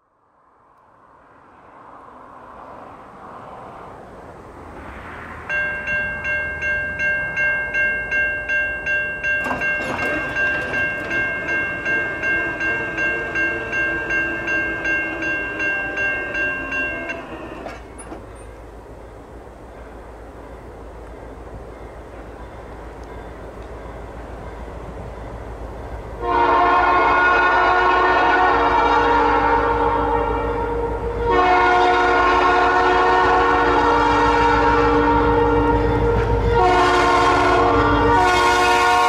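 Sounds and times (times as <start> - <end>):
diesel locomotive rumble: 4.1 - 39.0
crossing bell ringing: 5.5 - 39.0
locomotive horn chord: 26.2 - 39.0.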